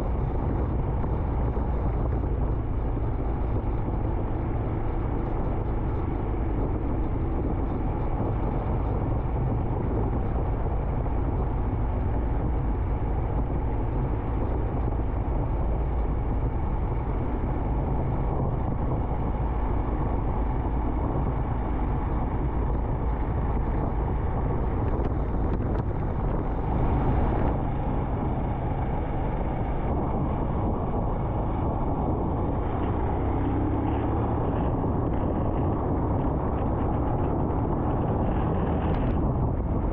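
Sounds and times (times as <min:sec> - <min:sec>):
motorcycle engine running: 0:00.0 - 0:39.9
road and wind noise: 0:00.0 - 0:39.9.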